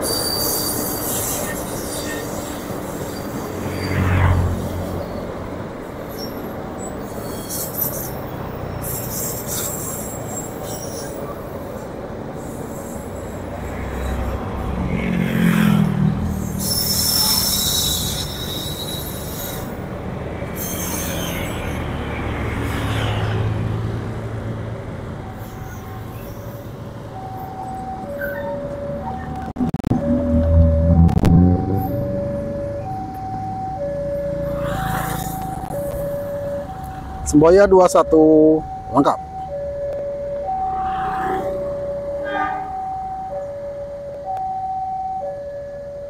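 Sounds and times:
high-pitched wheel squeal: 0.0 - 5.4, 6.0 - 14.4, 15.4 - 23.2, 25.2 - 37.3, 40.4 - 43.3
train wheels rumbling on rails: 0.0 - 40.7.

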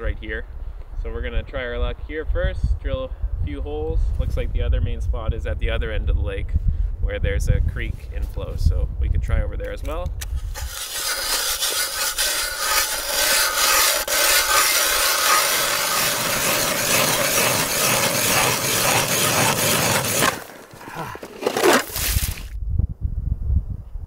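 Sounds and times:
ice auger scraping ice: 10.3 - 22.5.

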